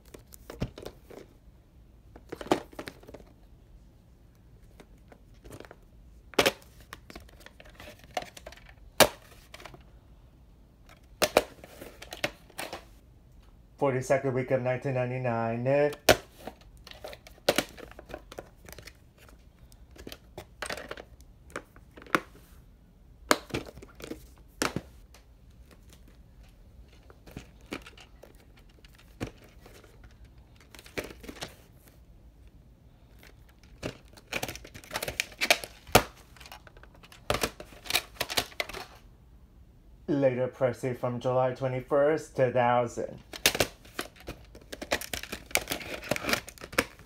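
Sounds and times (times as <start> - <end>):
plastic cases clicking and knocking: 0.1 - 1.3, 2.1 - 3.4, 4.7 - 9.8, 10.9 - 12.9, 15.9 - 22.4, 23.3 - 26.2, 26.9 - 31.6, 33.2 - 39.0, 43.2 - 47.0.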